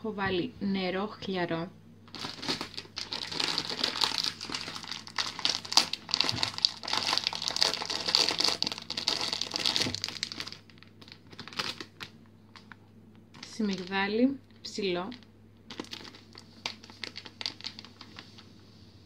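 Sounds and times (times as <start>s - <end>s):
plastic bag crinkling: 2.1s - 18.5s.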